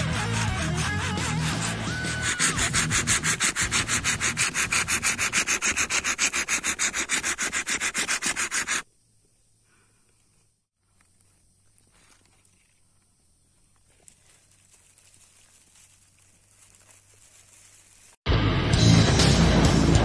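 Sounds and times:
bow drill spindle rubbing wood: 0.0s - 8.8s.

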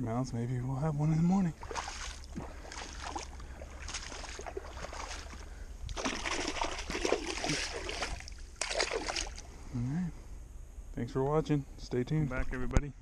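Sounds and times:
boots splashing through water: 1.6s - 9.4s.

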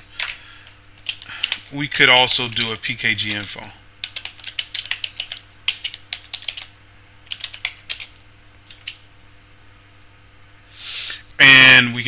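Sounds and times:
faint steady hum: 0.0s - 12.0s
typing on a computer keyboard: 0.2s - 1.7s, 2.5s - 9.0s.

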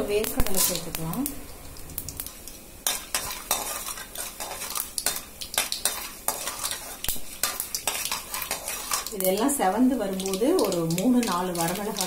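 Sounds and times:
seeds sizzling in oil: 0.0s - 12.0s
metal ladle scraping a pan: 2.8s - 9.2s.

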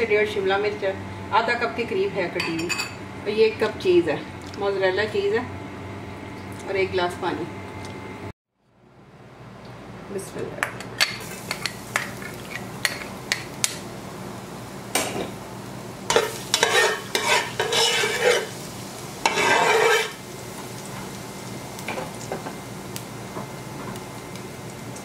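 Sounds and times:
oil sizzling: 11.1s - 25.0s
spatula scraping pot bottom: 16.1s - 18.6s, 19.3s - 20.2s.

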